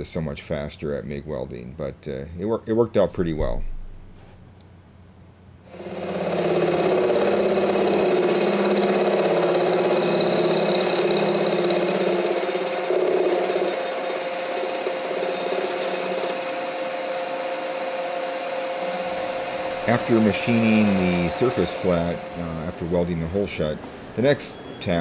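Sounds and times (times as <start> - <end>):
milling machine cutting metal: 5.7 - 24.4.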